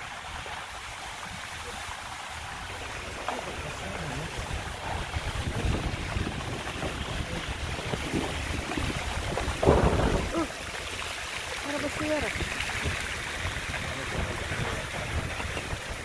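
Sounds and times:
rainwater rushing: 0.0 - 16.0
wind rumbling on microphone: 0.0 - 16.0.

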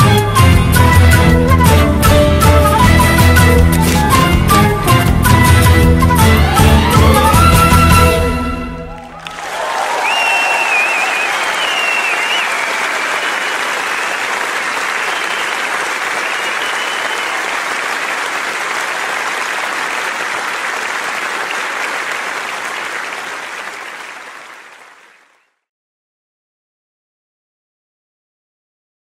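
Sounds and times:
audience applauding: 6.0 - 25.4.

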